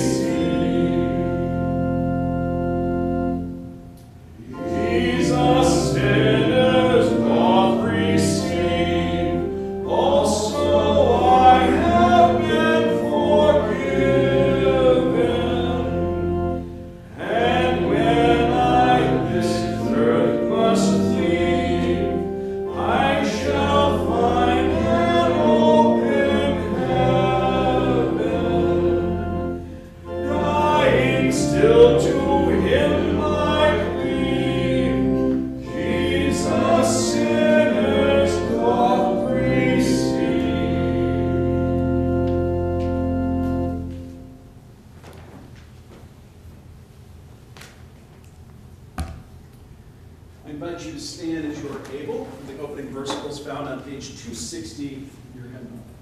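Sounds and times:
group singing a hymn: 0.0s - 3.7s, 4.4s - 44.4s
organ: 0.0s - 44.9s.

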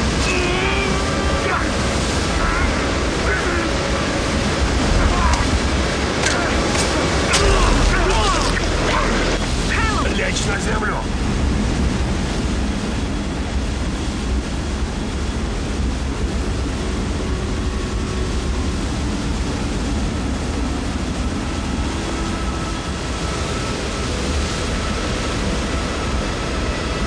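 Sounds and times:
waterfall roaring: 0.0s - 27.0s.

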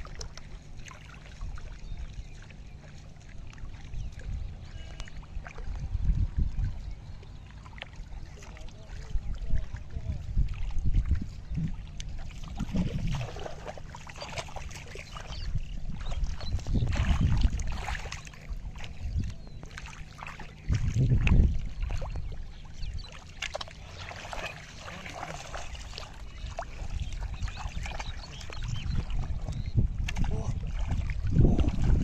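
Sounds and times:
wind rumble on microphone: 0.0s - 19.8s, 20.4s - 23.2s, 23.8s - 32.0s
feet splashing through water: 0.0s - 32.0s.

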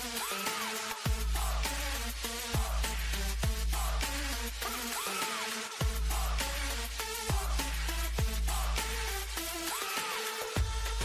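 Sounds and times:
electronic dance music: 0.0s - 11.0s
heavy bass line: 1.1s - 4.7s, 5.8s - 9.4s, 10.6s - 11.0s.

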